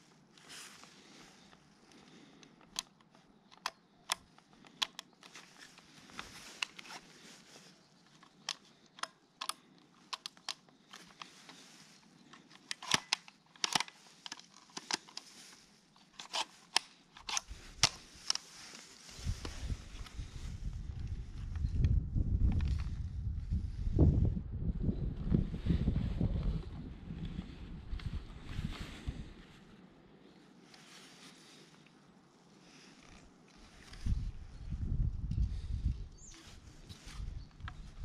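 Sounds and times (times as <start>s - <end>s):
handling clicks and knocks: 7.6s - 18.8s.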